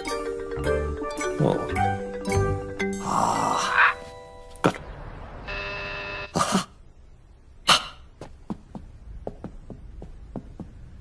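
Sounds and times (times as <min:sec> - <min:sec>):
door buzzer: 0:05.5 - 0:06.4
light quick footsteps: 0:08.1 - 0:11.0.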